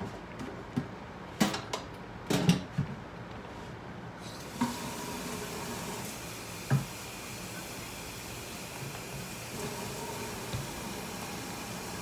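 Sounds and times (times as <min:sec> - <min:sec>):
steam hissing from boiling pots: 0:04.2 - 0:12.0.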